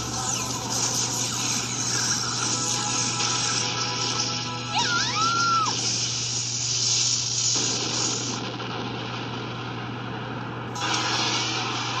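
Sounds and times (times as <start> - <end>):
steady low hum: 5.5 - 12.0
explosion crackling rush: 5.7 - 12.0
explosion blast: 7.5 - 9.8.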